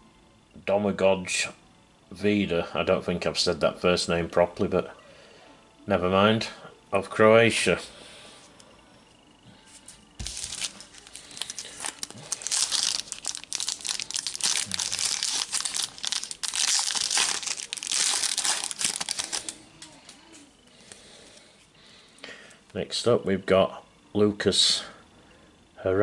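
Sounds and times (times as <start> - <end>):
card packet crinkling: 10.2 - 19.9.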